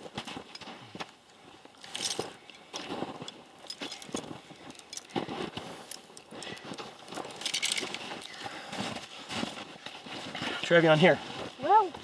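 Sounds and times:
steel chain clinking and rattling: 1.8s - 8.3s.

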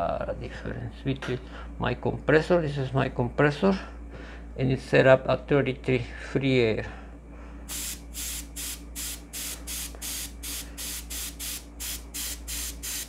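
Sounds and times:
steady low hum: 0.0s - 13.0s
airbrush spraying short hisses: 7.7s - 13.0s.

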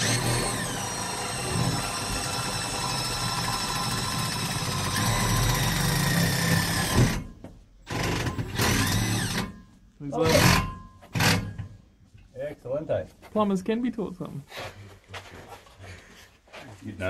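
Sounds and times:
cordless drill driving screw: 0.0s - 7.3s, 7.9s - 9.6s.

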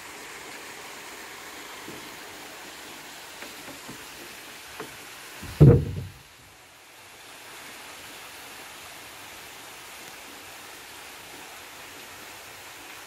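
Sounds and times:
flowing water rushing: 0.0s - 13.0s
loud low thump: 5.4s - 6.2s.

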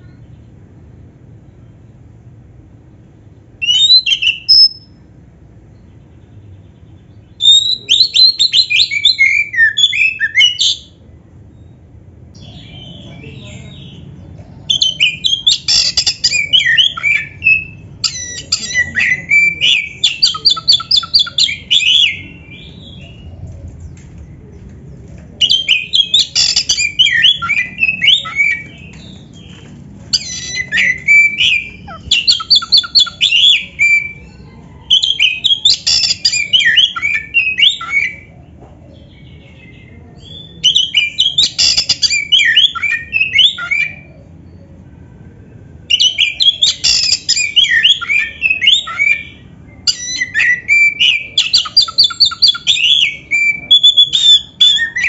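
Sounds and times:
bird singing: 3.6s - 5.0s, 5.7s - 38.3s, 38.9s - 55.0s.

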